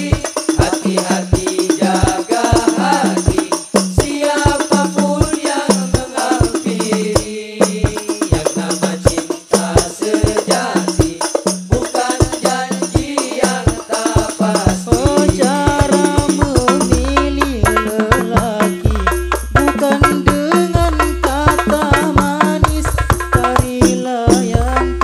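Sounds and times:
frame drums fast rhythm: 0.0s - 25.0s
person singing melody: 13.2s - 25.0s
deep bass drum notes: 14.9s - 25.0s.

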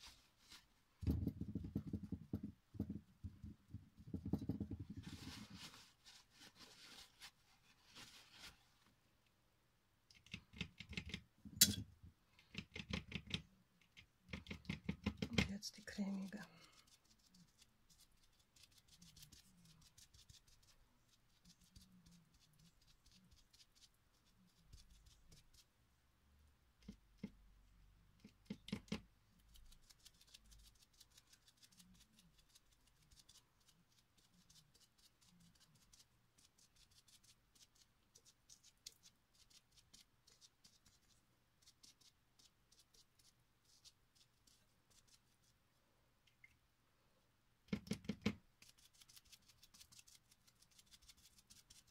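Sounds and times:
paint dabbing on glass: 1.0s - 5.8s.

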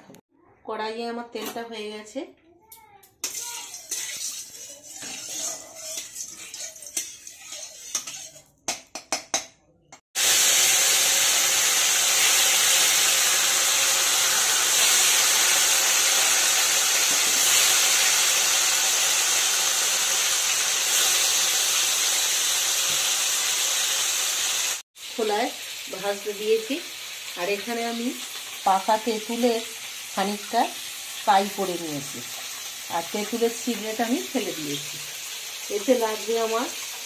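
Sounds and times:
fish frying in oil: 10.2s - 37.0s.

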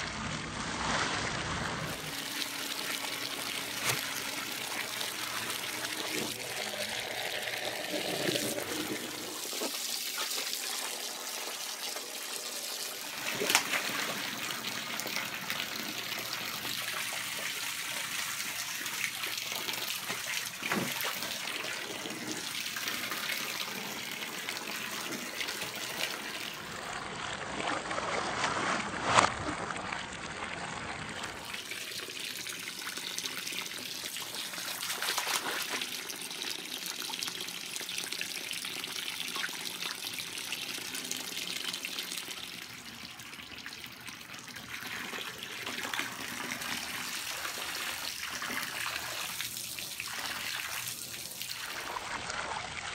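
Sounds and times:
water splashes: 0.0s - 12.3s, 13.0s - 18.6s, 34.2s - 36.2s
hose water pouring into pool: 0.0s - 52.9s.

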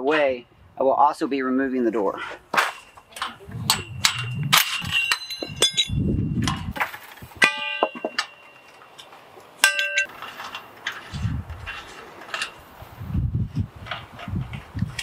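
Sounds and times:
metal clamps clanking on steel tubing: 7.4s - 12.7s.

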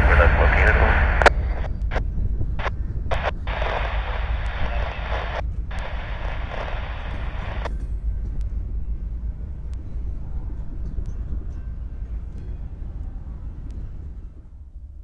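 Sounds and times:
train rumbling by: 0.0s - 15.0s
faint clicks: 0.6s - 8.6s.

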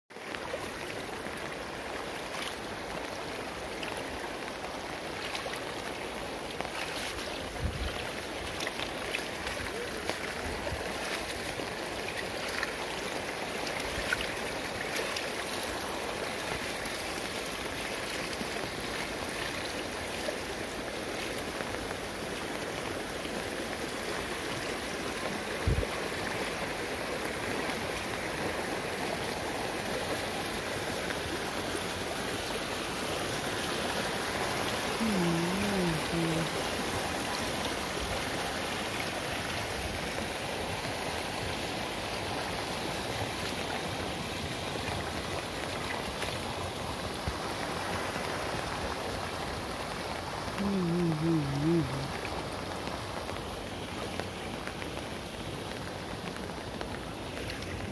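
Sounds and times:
water rushing in a channel: 0.1s - 57.9s.

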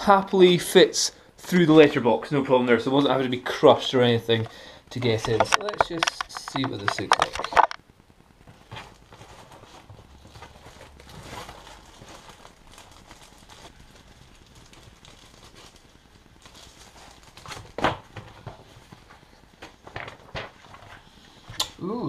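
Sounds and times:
cardboard and plastic rustling: 3.0s - 7.8s, 8.4s - 21.2s.

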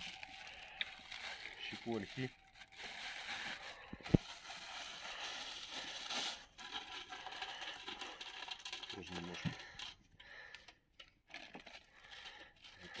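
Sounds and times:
wood chips pattering: 0.0s - 9.4s.

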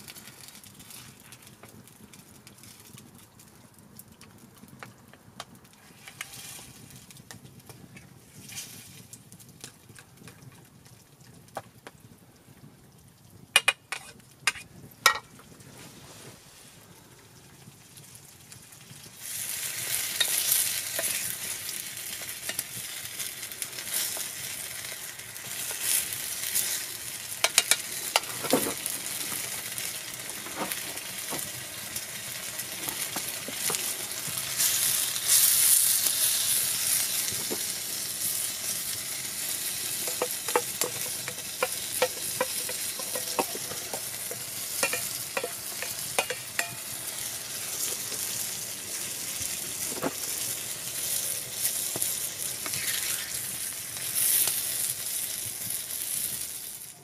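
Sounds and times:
food sizzling in a pan: 5.8s - 7.1s, 13.6s - 15.2s, 19.0s - 57.0s.

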